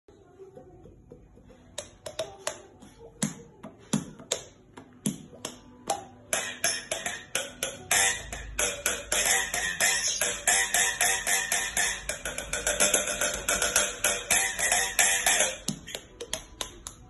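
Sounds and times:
music: 0:00.1 - 0:17.0
sharp percussive hits: 0:05.9 - 0:16.6.

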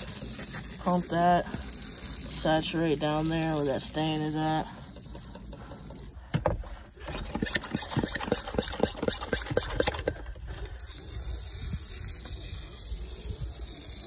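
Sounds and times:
pump sprayer hissing spray: 0:00.0 - 0:14.0
quick taps and spatters: 0:05.1 - 0:10.3.

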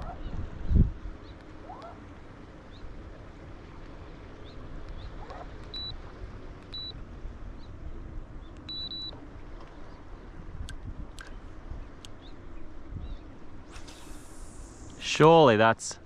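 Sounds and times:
boat motor humming: 0:00.0 - 0:15.3.

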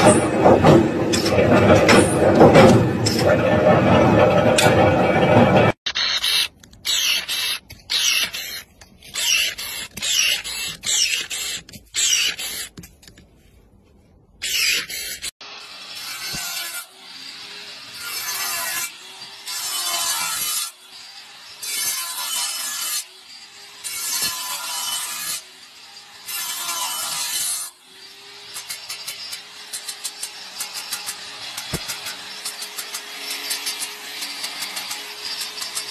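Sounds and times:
angle grinder cutting stone: 0:00.0 - 0:12.7, 0:14.4 - 0:35.9
electric pruning shears snipping: 0:28.5 - 0:35.9.

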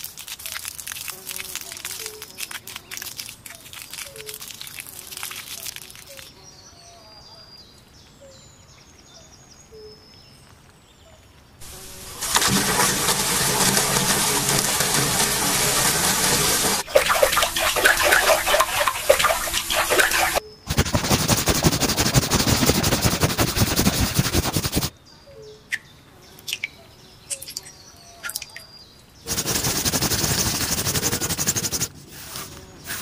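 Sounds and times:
water gushing into metal basin: 0:11.6 - 0:20.4
hands splashing in water: 0:11.6 - 0:24.9.

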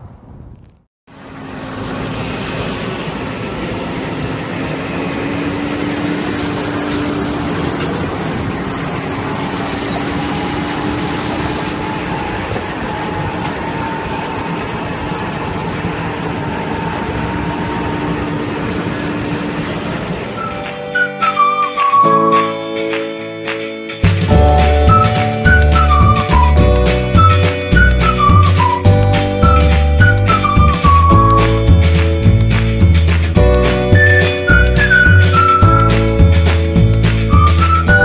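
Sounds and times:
constant rushing noise: 0:00.1 - 0:21.3
tractor engine running under load: 0:01.1 - 0:21.9, 0:24.0 - 0:38.0.

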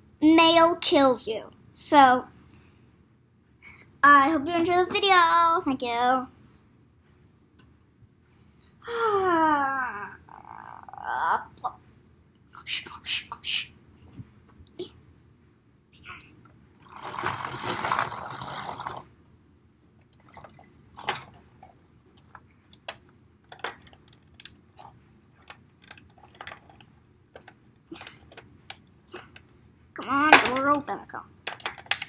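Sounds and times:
light taps and clicks of toys: 0:31.4 - 0:32.0.

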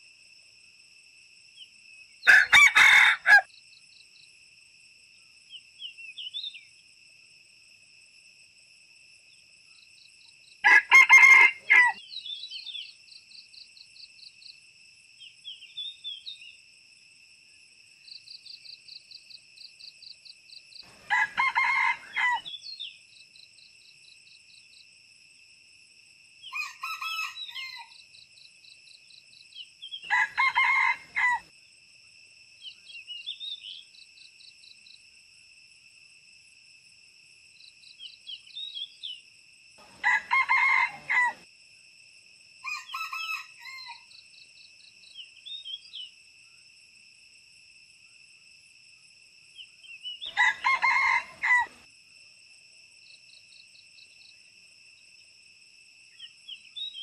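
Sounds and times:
high insect drone: 0:00.0 - 0:57.0
roosters crowing: 0:02.2 - 0:03.5, 0:10.6 - 0:12.0, 0:20.8 - 0:22.5, 0:26.5 - 0:27.9, 0:30.0 - 0:31.5, 0:39.8 - 0:41.4, 0:42.6 - 0:44.1, 0:50.3 - 0:51.8.

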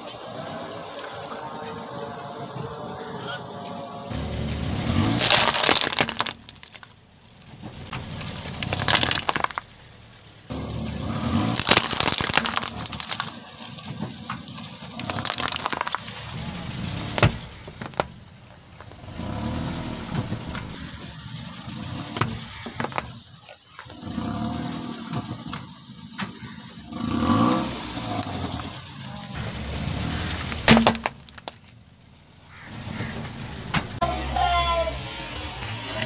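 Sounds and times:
car engine at low speed: 0:00.0 - 0:36.0
tyre crushing plastic toys: 0:05.1 - 0:09.7, 0:11.4 - 0:16.4, 0:17.2 - 0:18.2, 0:22.2 - 0:24.0, 0:30.4 - 0:31.8.

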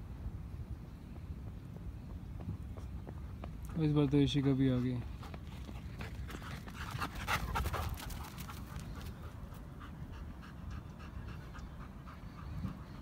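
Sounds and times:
dogs panting: 0:03.1 - 0:13.0.

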